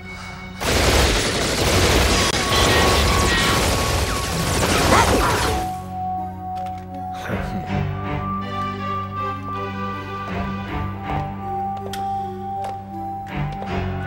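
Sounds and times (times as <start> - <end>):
background music: 0.0 - 14.0
gunfire burst: 0.6 - 5.8.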